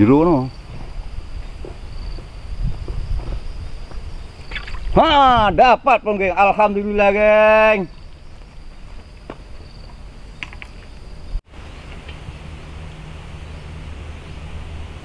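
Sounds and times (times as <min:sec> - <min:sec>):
wind rumble on microphone: 0:00.0 - 0:06.0
insects calling: 0:00.0 - 0:15.0.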